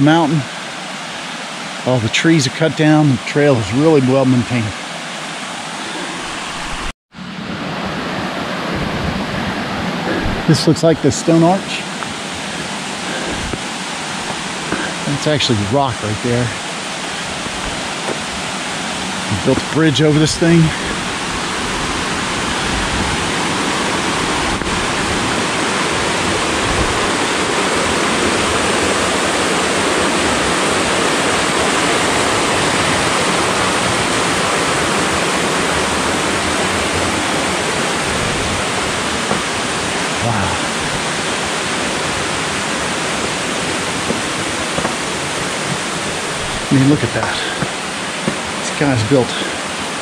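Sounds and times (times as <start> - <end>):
stream rushing over rocks: 0.0 - 50.0.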